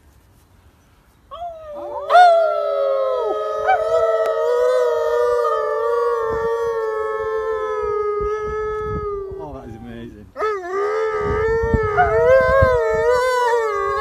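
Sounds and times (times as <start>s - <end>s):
dog howling: 1.4s - 9.4s, 10.4s - 14.0s
man howling: 1.4s - 14.0s.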